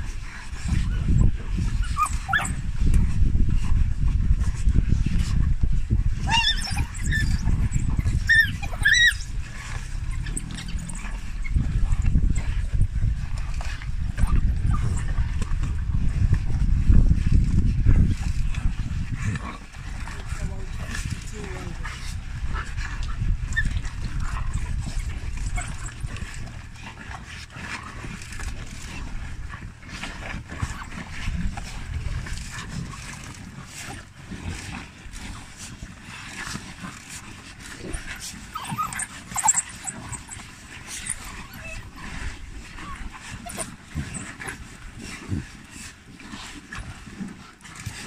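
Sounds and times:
wild dogs squeaking and whimpering: 0.0 - 3.0, 6.0 - 16.6, 18.1 - 48.0
steady low rumble: 0.0 - 47.7
scuffling and feeding noise: 0.0 - 48.0
dogs squealing: 1.8 - 2.6, 6.2 - 11.6, 38.5 - 42.0.

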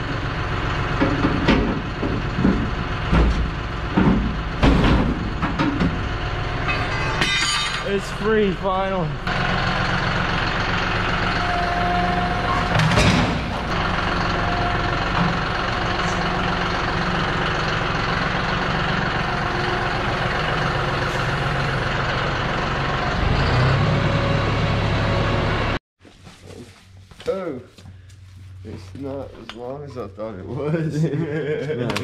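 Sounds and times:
tractor diesel engine running: 0.0 - 25.8
loud metal clank: 6.6 - 8.1, 12.5 - 13.7.

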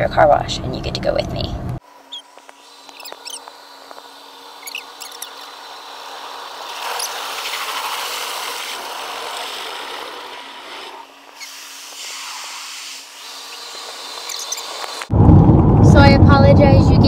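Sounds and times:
water spray rushing on car: 6.4 - 15.1
brushes scrubbing car body: 6.6 - 15.1.

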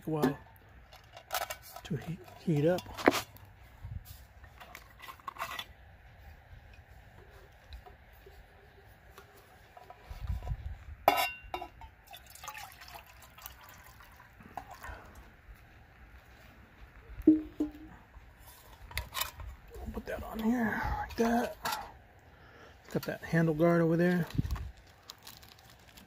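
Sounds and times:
metal cup clinking: 11.0 - 13.1
water poured into metal cup: 12.0 - 15.2.

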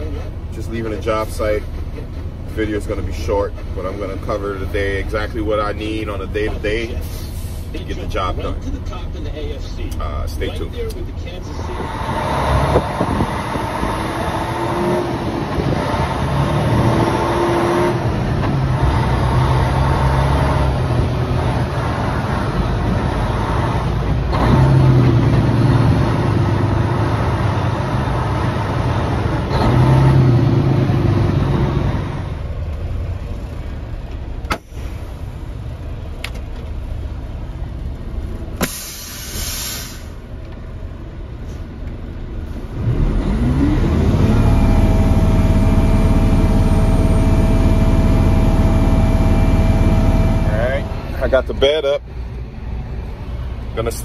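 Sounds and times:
diesel truck engine running: 0.0 - 54.0
air brake click and hiss: 34.5 - 35.1, 38.6 - 40.2.

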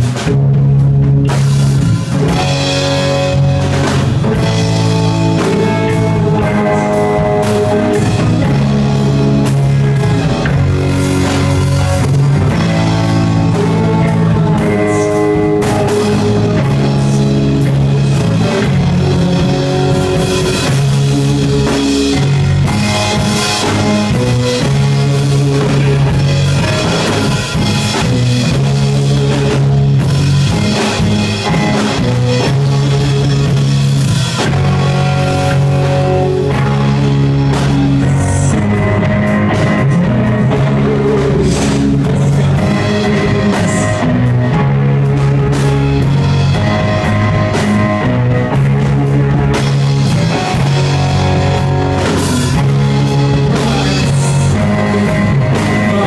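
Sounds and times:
rock band playing: 0.0 - 56.0.

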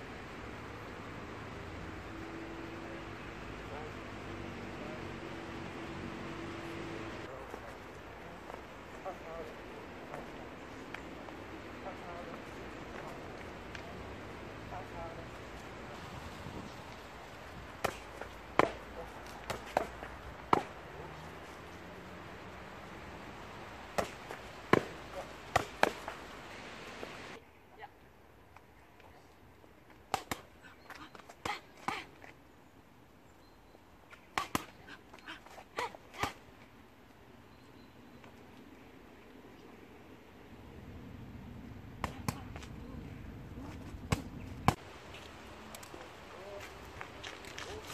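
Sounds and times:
boxing gloves hitting mitts: 17.8 - 20.8, 23.9 - 26.2.

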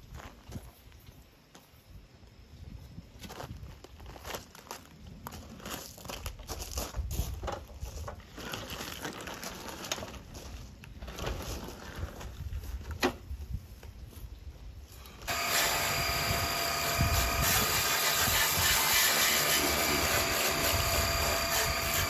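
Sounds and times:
lawn mower engine running: 15.3 - 22.0.

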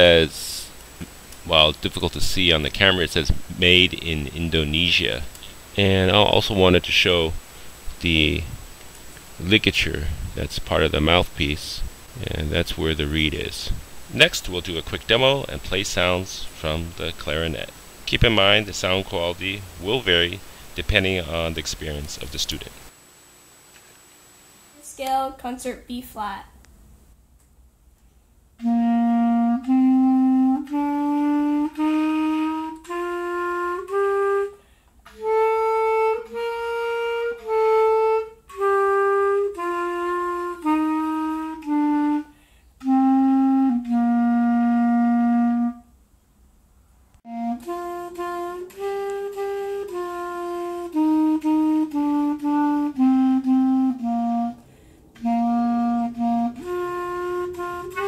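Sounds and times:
clarinet playing a scale: 28.6 - 45.9, 47.3 - 54.6, 55.2 - 58.0.

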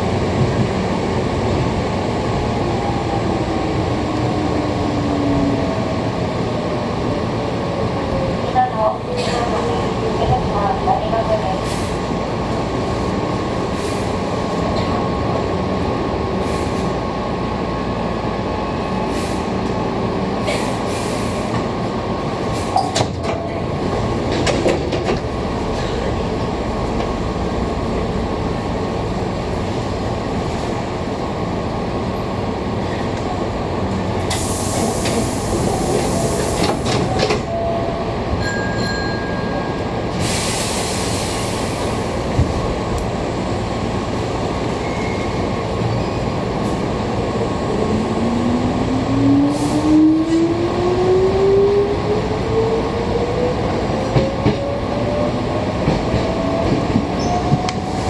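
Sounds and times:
passing train rush: 0.0 - 58.0
train wheels and motors rumbling: 0.0 - 58.0
clacks over rail joints: 24.2 - 26.0.

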